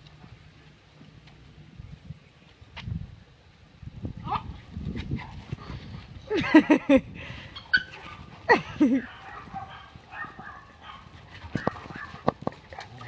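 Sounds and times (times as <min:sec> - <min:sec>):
dogs barking and yipping: 0:06.4 - 0:13.0
dogs scuffling: 0:07.8 - 0:13.0.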